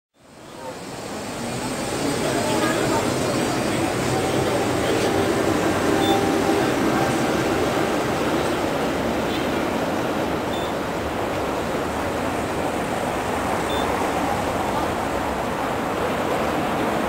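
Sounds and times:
traffic: 0:00.2 - 0:17.0
tram passing: 0:00.2 - 0:17.0
crowd murmur: 0:00.7 - 0:08.2
short high beeps: 0:06.0 - 0:06.4, 0:10.5 - 0:10.8, 0:13.7 - 0:14.0.

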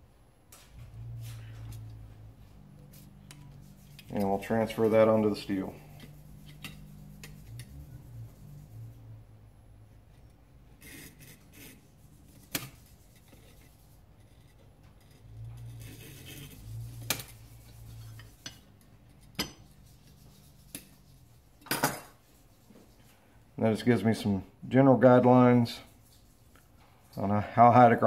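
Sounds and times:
steel point scratching metal: 0:03.2 - 0:09.0, 0:10.8 - 0:23.0.

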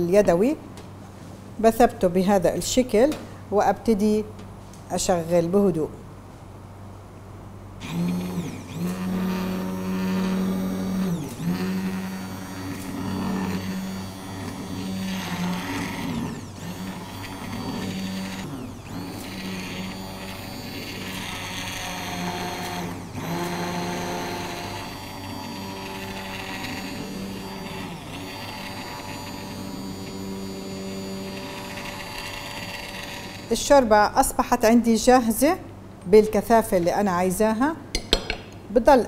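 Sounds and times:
immersion blender whirring: 0:07.8 - 0:33.7.

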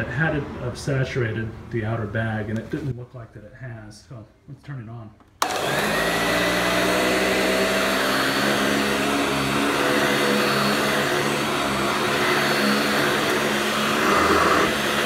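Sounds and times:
vacuum cleaner motor whine: 0:05.4 - 0:15.0.

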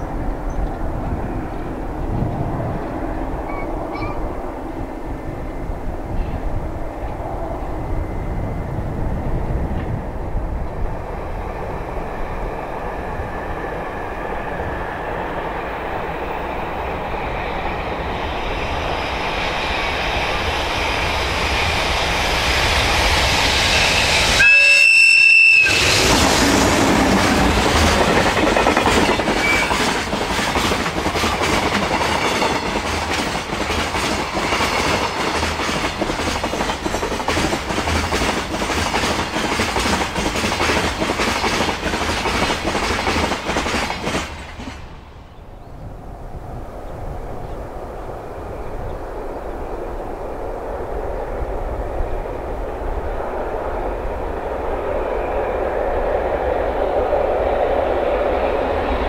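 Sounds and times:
freight train rumbling: 0:00.0 - 0:59.0
train horn blast: 0:24.4 - 0:26.0
wheels clattering over rail joints: 0:25.8 - 0:45.0.

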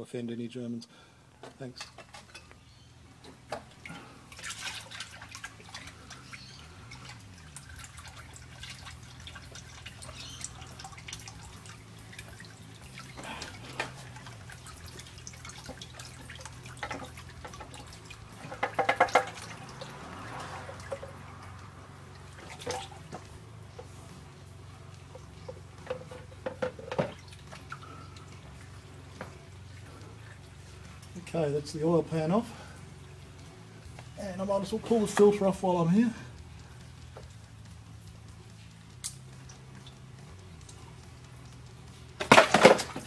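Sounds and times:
fluid dripping into plastic pan: 0:03.2 - 0:24.0
clicks and knocks handling pan: 0:18.4 - 0:19.4, 0:25.8 - 0:27.2.

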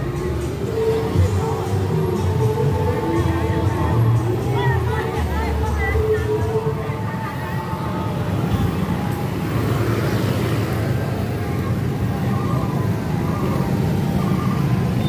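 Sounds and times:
traffic engines rumbling: 0:00.0 - 0:15.0
voices: 0:00.0 - 0:15.0.

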